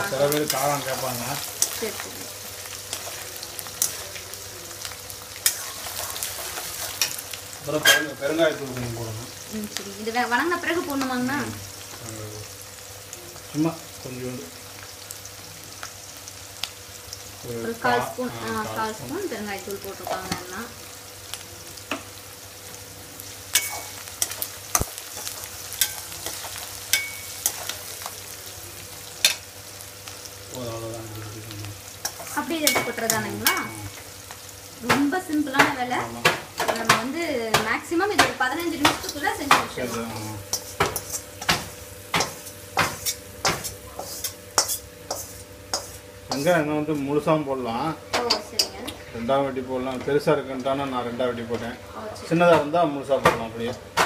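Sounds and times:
food sizzling in hot oil: 0.0 - 54.0
spatula clinking against pan: 25.8 - 27.6
steel spatula scraping pan: 42.9 - 46.6.

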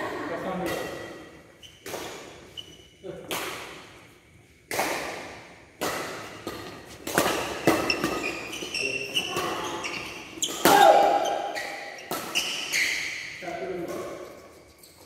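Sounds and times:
rackets hitting shuttlecock: 0.5 - 14.6
shoes squeaking on court: 1.5 - 3.0, 6.4 - 15.0.

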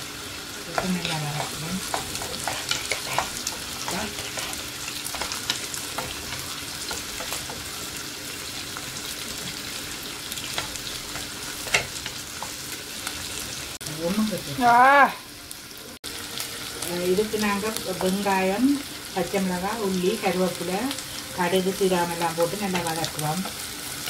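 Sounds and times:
food sizzling in hot oil: 0.0 - 24.0
wooden spatula stirring: 0.7 - 7.9.

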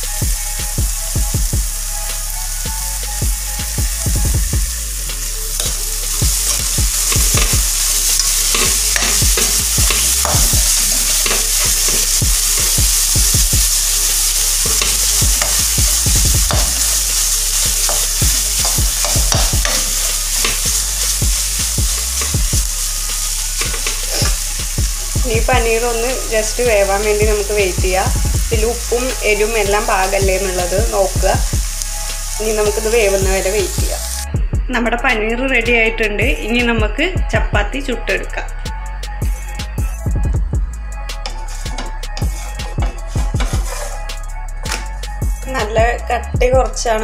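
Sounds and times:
frying sizzle: 0.0 - 34.3, 41.1 - 45.9
metal spoon scraping a pan: 5.5 - 13.2, 13.9 - 15.8, 16.4 - 22.4, 23.1 - 24.5, 41.1 - 44.8.

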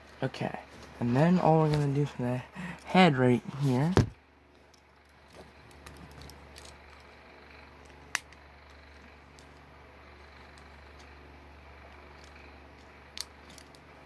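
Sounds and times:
low steady hum: 0.0 - 14.0
plastic toy bricks handled: 12.1 - 13.9.

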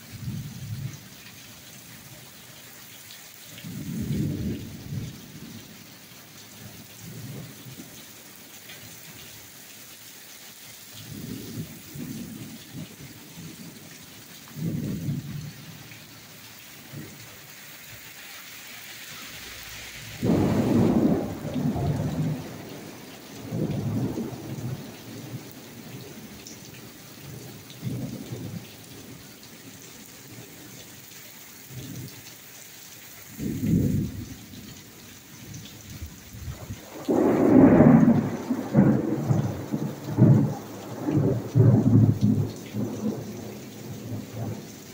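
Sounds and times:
heavy rain on pavement: 0.0 - 44.9
thunder rumbling: 3.6 - 5.4, 20.1 - 26.4, 33.4 - 34.6, 36.0 - 44.6.

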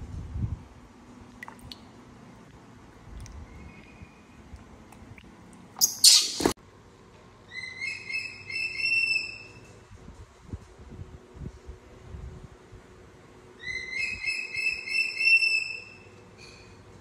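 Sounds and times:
baby monkey squeaking: 5.8 - 6.5.

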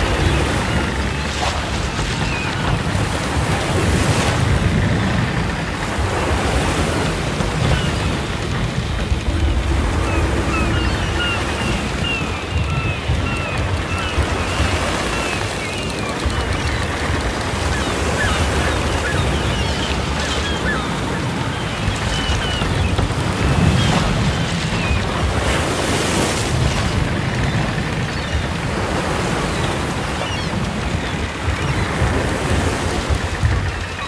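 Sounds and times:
ocean surf washing onto beach: 0.0 - 34.0.

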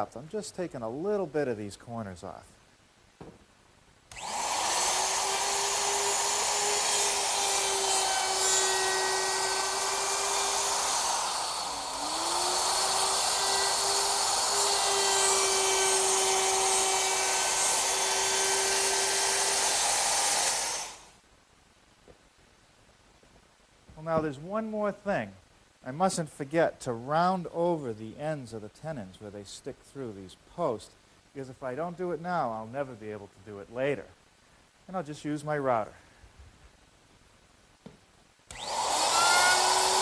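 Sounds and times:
router cutting wood: 4.1 - 21.1, 38.5 - 40.0.

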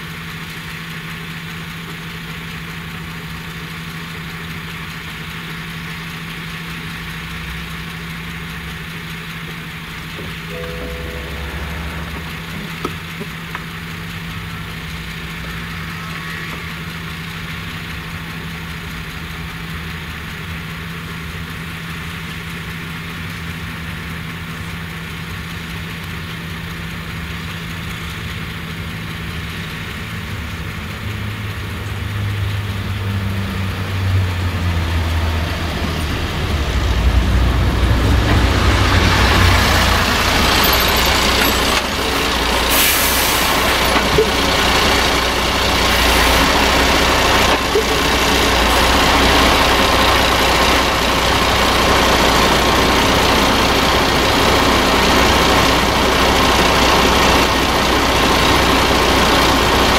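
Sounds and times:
truck diesel engine idling: 0.0 - 59.9
distant farm machine working: 34.6 - 59.9.

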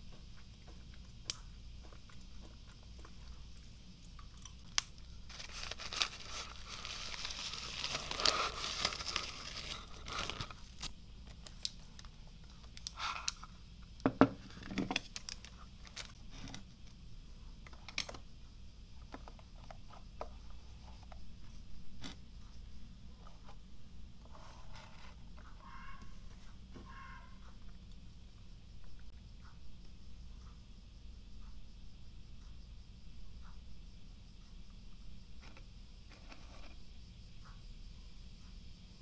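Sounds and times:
packaging crinkling and rustling: 4.6 - 12.1, 14.9 - 16.6.

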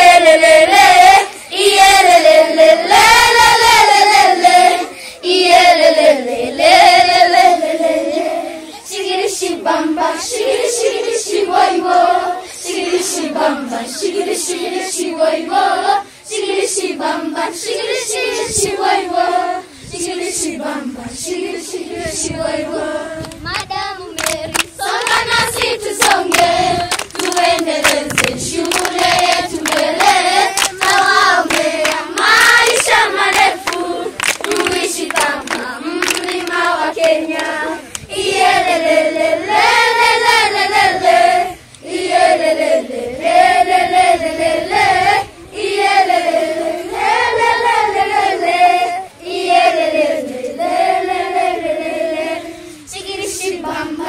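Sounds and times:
children singing together: 0.0 - 54.0
hand claps: 23.2 - 38.1.

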